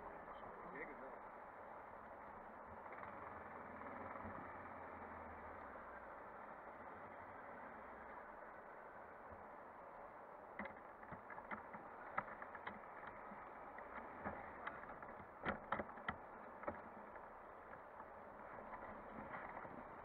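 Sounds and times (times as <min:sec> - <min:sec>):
sharp knocks and rattles: 0:10.4 - 0:20.0.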